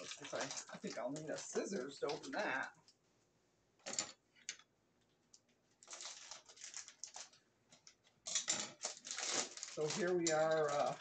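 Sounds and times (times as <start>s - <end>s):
plastic bag crinkling: 0.0s - 2.7s, 5.4s - 11.0s.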